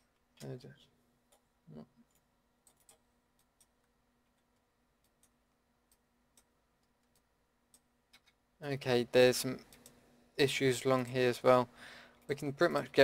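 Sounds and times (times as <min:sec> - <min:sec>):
computer keyboard and mouse clicks: 0:01.3 - 0:08.4, 0:09.6 - 0:10.0.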